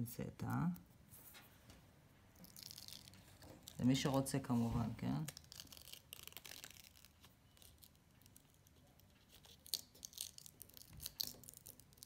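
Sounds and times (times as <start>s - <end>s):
sticker peeling crackle: 2.4s - 12.0s.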